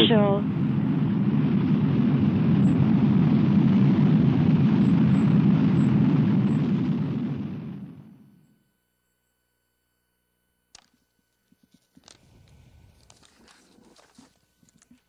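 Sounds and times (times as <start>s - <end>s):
rocket explosion rumbling roar: 0.0s - 8.4s, 12.2s - 14.0s.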